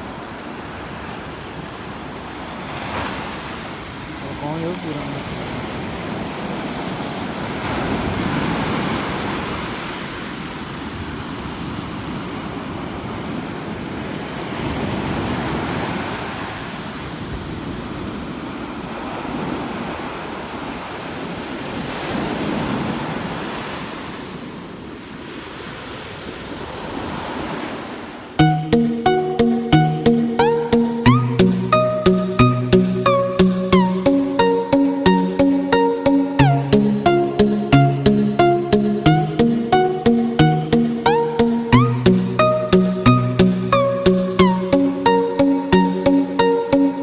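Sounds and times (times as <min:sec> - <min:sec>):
small waves breaking on shore: 0:00.0 - 0:28.4.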